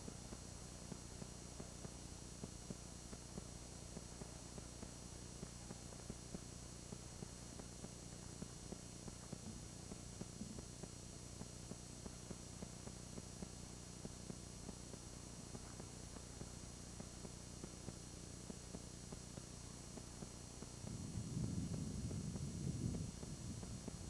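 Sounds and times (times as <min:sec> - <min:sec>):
electrical hum and tape hiss: 0:00.0 - 0:24.0
faint irregular clicks: 0:00.0 - 0:24.0.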